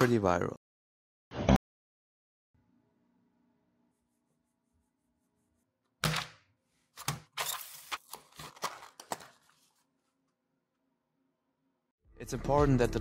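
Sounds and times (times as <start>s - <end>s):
clicks and cardboard rustling: 7.0s - 9.8s.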